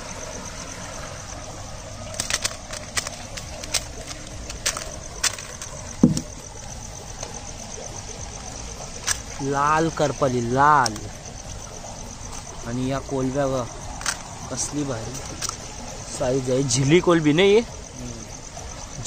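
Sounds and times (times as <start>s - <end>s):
night insects chirring: 0.0s - 19.0s
sharp clicks and taps: 4.6s - 6.4s.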